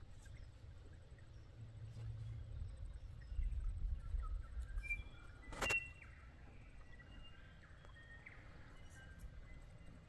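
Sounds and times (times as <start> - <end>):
faint birdsong chirps and whistles: 0.0 - 10.0.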